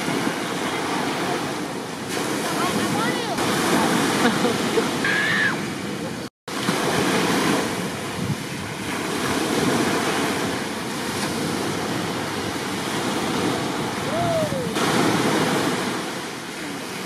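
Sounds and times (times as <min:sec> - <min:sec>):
ocean waves: 0:00.0 - 0:17.0
wind buffeting microphone: 0:05.6 - 0:16.5.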